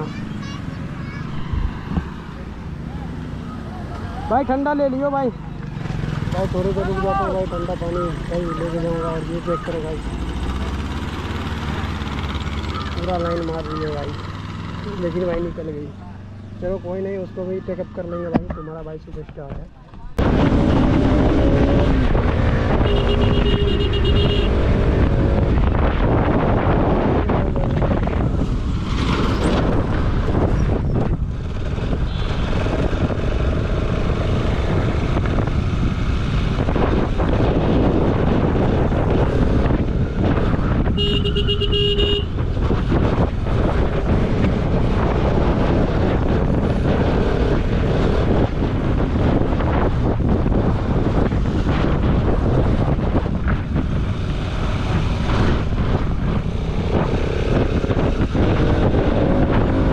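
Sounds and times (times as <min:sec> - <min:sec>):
wind over microphone: 0:06.0 - 0:59.9
vehicle horn honking: 0:22.8 - 0:24.6, 0:40.9 - 0:42.3.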